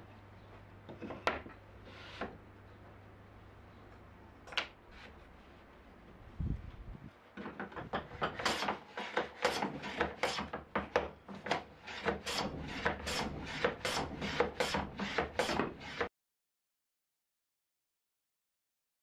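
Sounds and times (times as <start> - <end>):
bench plane shaving wood: 8.1 - 10.6, 11.4 - 16.1.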